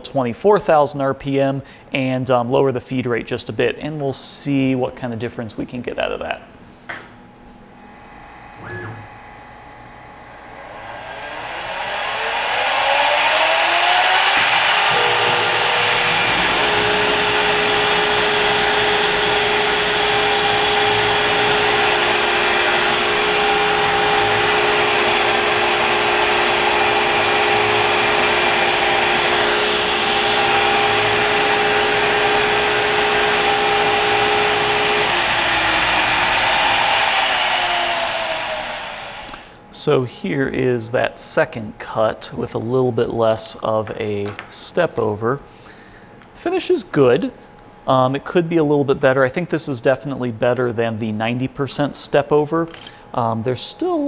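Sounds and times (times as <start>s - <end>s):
router spindle whine: 7.8s - 39.5s
end mill cutting aluminum: 9.2s - 39.5s.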